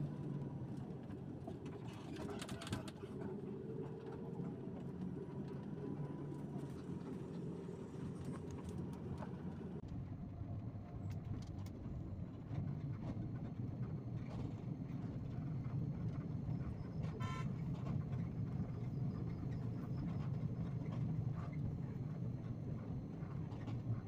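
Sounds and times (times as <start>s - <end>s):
bus engine and road rumble: 0.0s - 24.0s
vehicle horn toot: 17.2s - 17.6s.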